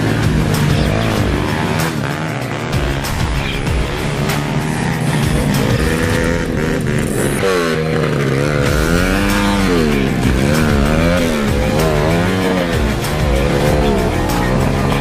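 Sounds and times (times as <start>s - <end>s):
dirt bike engine revving: 0.0s - 15.0s.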